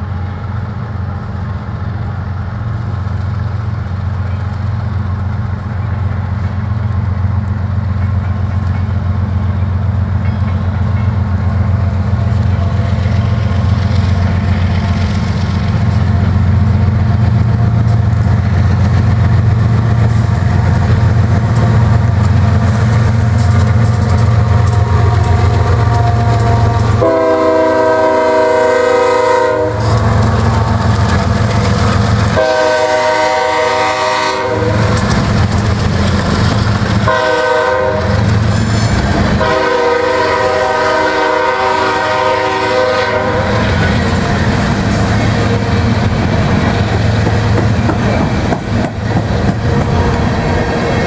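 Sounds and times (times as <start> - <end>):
diesel locomotive engine rumble: 0.0 - 51.0
freight cars rolling on rails: 1.1 - 51.0
locomotive horn blasts: 24.8 - 30.0, 32.4 - 35.0, 37.1 - 38.2, 39.4 - 43.8.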